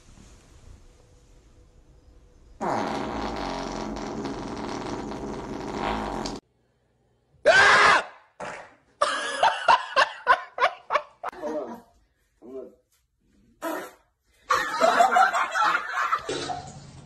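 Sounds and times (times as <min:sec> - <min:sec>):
buzzing fart: 0:02.6 - 0:06.4, 0:08.4 - 0:08.8.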